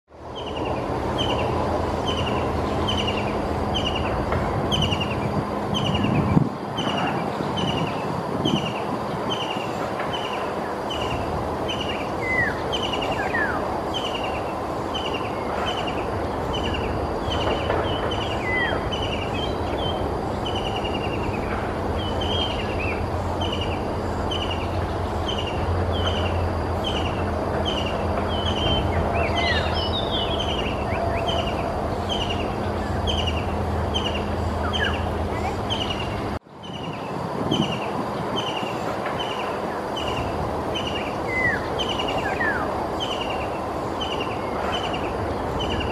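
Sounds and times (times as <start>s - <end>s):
bird chirps: 6.8s - 45.9s
kingfisher calling: 25.2s - 36.9s.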